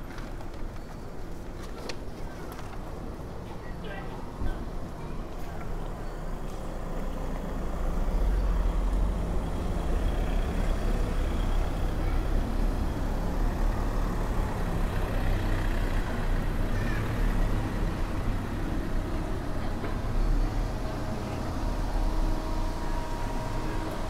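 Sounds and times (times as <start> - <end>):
street noise: 0.0 - 24.0
vehicle engine rumbling: 5.2 - 24.0.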